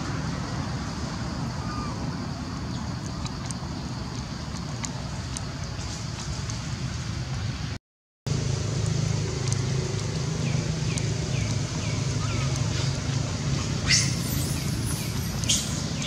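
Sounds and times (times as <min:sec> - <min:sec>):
low mechanical hum: 0:00.0 - 0:16.0
faint high ticks: 0:08.8 - 0:11.7.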